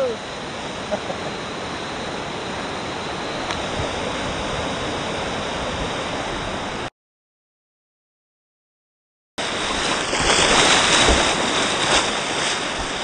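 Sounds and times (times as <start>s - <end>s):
whitewater rushing below weir: 9.4s - 13.0s.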